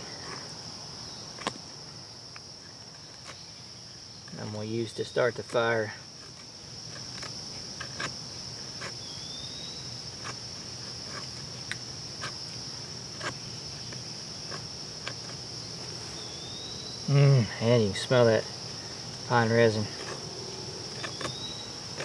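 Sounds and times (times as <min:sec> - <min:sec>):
crickets chirring: 0:00.0 - 0:22.0
knife cutting wood: 0:05.4 - 0:09.1, 0:10.1 - 0:16.0, 0:19.1 - 0:22.0.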